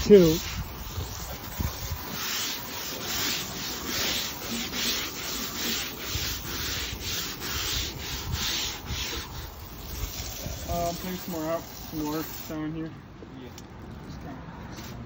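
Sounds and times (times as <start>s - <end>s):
scrub brush scrubbing wet decking: 0.0s - 12.8s.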